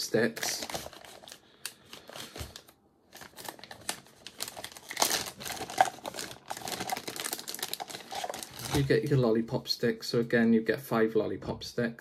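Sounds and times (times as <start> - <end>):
plastic packaging crinkling: 0.0 - 9.2.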